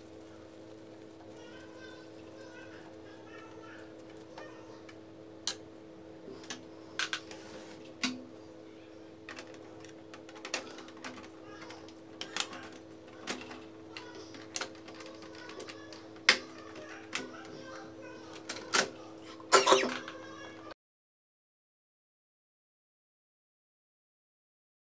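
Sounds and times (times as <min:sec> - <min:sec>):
steady low hum: 0:00.0 - 0:14.5.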